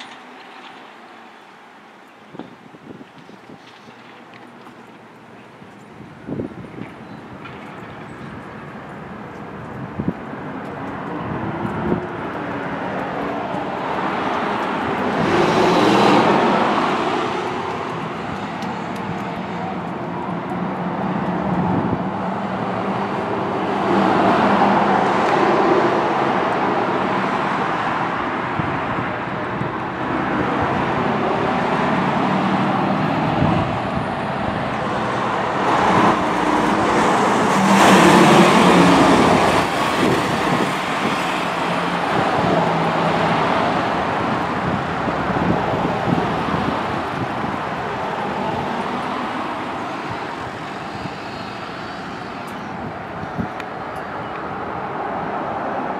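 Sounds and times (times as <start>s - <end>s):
tyres on the road: 0.0s - 55.9s
diesel engines running: 8.8s - 55.9s
truck driving past: 29.9s - 52.5s.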